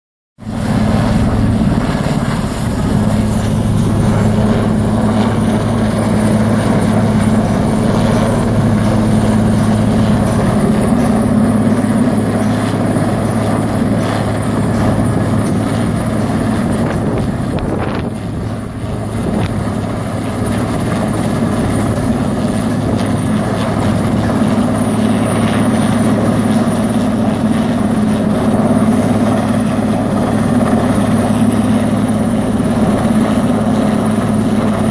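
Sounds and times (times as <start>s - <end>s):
helicopter rotor and turbine drone: 0.4s - 34.9s.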